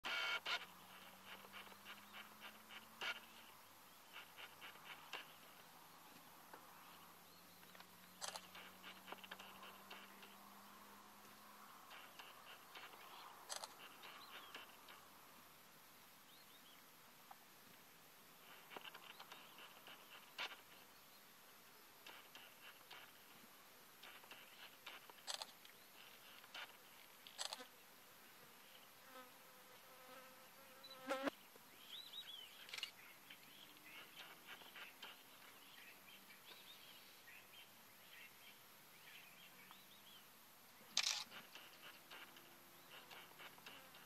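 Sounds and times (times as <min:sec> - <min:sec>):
sharp clicks: 0:07.7 - 0:10.4, 0:12.0 - 0:13.9, 0:24.0 - 0:25.8, 0:41.0 - 0:44.0.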